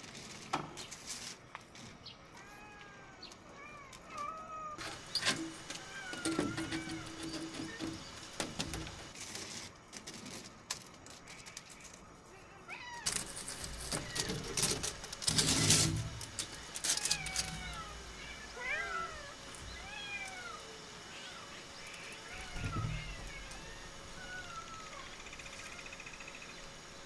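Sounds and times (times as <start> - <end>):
cats meowing: 2.4 - 5.1, 5.8 - 8.1, 12.3 - 25.9
rustling: 12.9 - 21.0.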